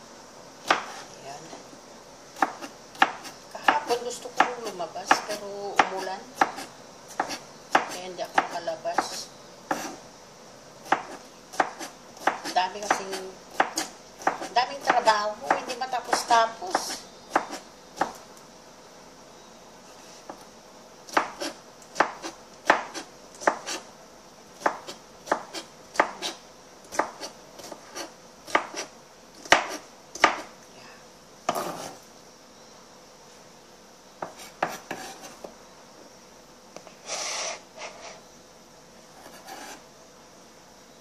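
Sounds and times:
knife chopping on cutting board: 0.6s - 1.1s, 2.4s - 10.0s, 10.8s - 18.2s, 21.1s - 23.8s, 24.6s - 30.5s, 31.5s - 32.0s, 34.2s - 35.5s
knife scraping cutting board: 0.7s - 1.2s, 5.1s - 10.0s, 10.9s - 14.6s, 21.1s - 23.9s, 24.6s - 30.5s, 31.5s - 32.0s, 34.2s - 35.5s, 37.0s - 38.2s, 39.1s - 39.8s.

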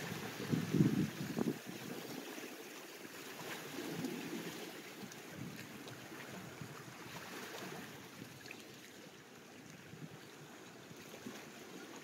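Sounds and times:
small water splashes: 0.0s - 12.0s
small waves lapping against rocks: 0.0s - 12.0s.

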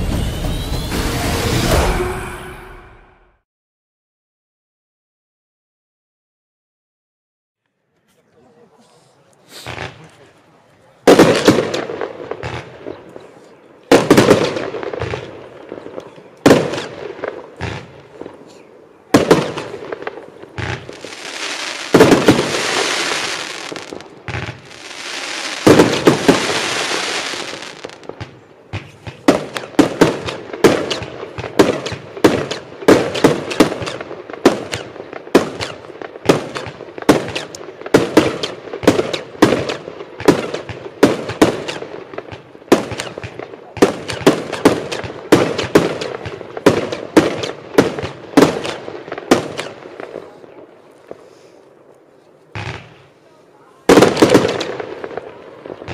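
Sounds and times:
fireworks shots bursting: 9.5s - 10.1s, 11.1s - 13.1s, 13.9s - 51.4s, 52.5s - 53.2s, 53.8s - 55.9s
fireworks bangs: 9.5s - 10.2s, 11.0s - 51.8s, 52.5s - 55.9s.

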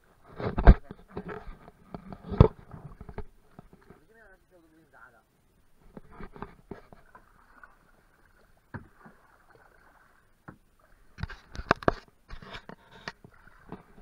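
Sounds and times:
paddle strokes in water: 0.0s - 4.4s, 5.8s - 14.0s
knocks on canoe: 8.7s - 9.2s.

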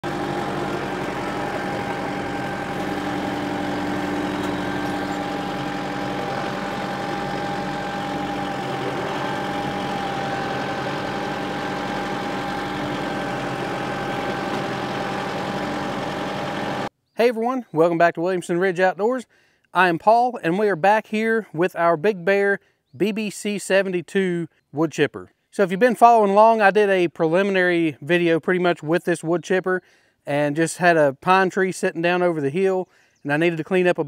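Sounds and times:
tractor diesel engine passing: 0.0s - 16.9s.

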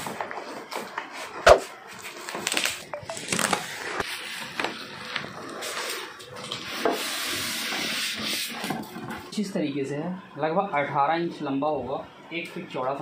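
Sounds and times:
plastic wrap crinkling: 1.7s - 5.9s.

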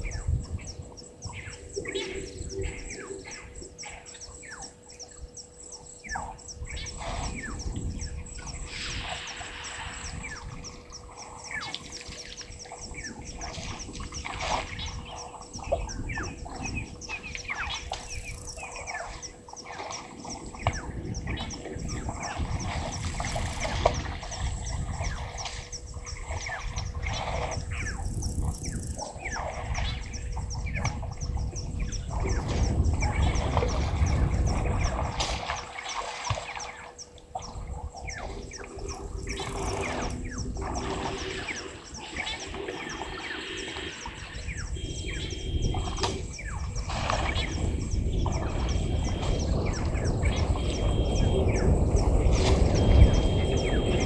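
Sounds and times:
birds chirping: 0.0s - 54.0s
faint high whine: 0.0s - 54.0s
low rumble: 37.4s - 54.0s.

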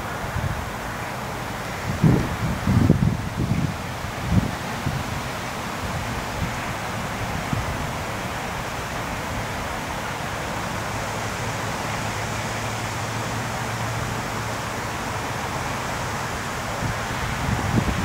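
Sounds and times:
wind rushing on microphone: 0.0s - 0.8s, 1.4s - 12.2s, 16.4s - 18.0s
wind rustling through trees: 0.0s - 18.0s.

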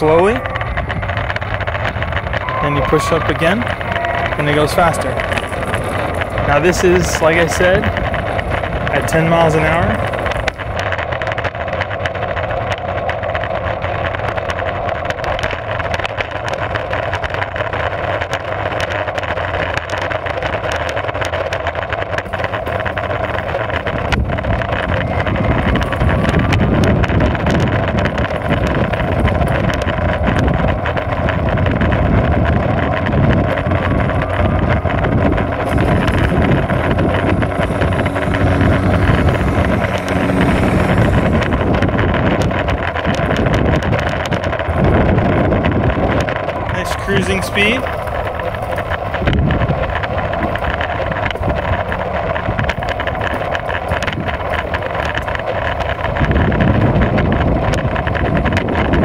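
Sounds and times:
wheels rumbling on asphalt: 0.0s - 59.0s
wind buffeting microphone: 0.0s - 59.0s
electric motor whine: 22.2s - 58.5s.

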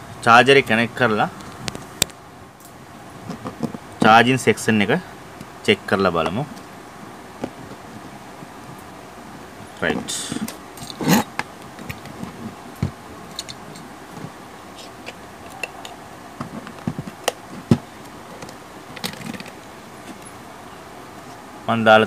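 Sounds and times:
small parts clicking and scraping: 10.3s - 12.5s, 13.2s - 20.4s.

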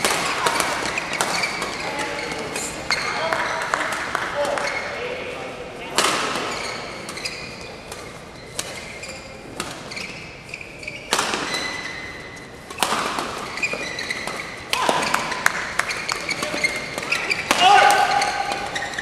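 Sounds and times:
racket hitting shuttlecock: 0.0s - 4.8s, 5.9s - 10.1s, 11.0s - 19.0s
shoe squeaks on court floor: 0.8s - 3.7s, 6.2s - 14.7s, 15.8s - 19.0s.

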